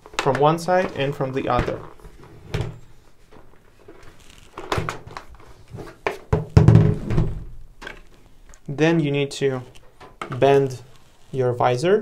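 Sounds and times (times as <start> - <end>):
heavy thumps: 6.1 - 8.0.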